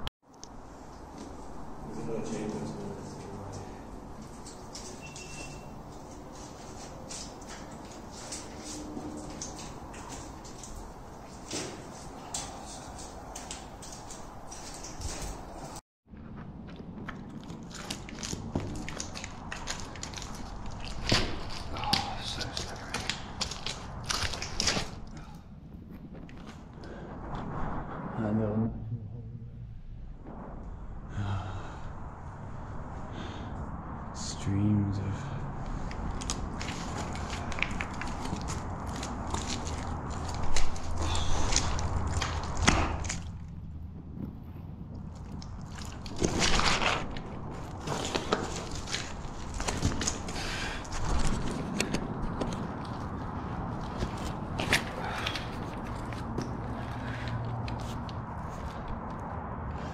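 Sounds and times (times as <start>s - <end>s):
footsteps on stony cave floor: 3.4s - 26.9s, 35.7s - 59.2s
loose rock clicking underfoot: 16.6s - 26.8s, 35.9s - 59.2s.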